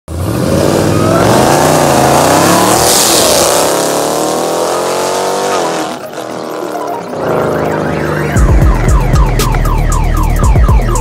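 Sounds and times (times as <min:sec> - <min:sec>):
car engine accelerating hard: 0:00.1 - 0:08.2.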